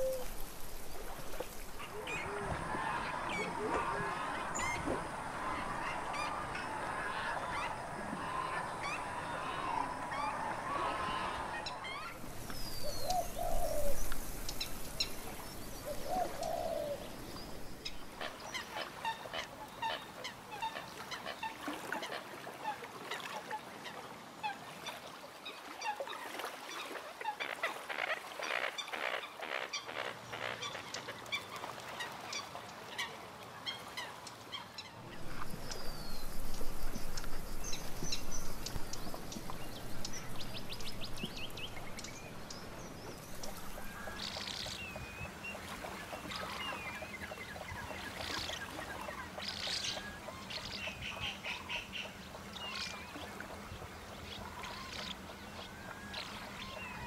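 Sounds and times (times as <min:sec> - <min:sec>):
waterbirds chirping chorus: 0:00.0 - 0:57.0
low drawn-out bird calls: 0:01.7 - 0:15.2, 0:34.8 - 0:45.5.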